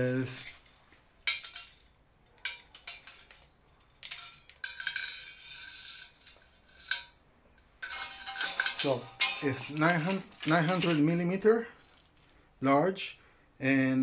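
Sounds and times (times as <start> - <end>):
tape measure clicks and rattles: 7.8 - 11.2.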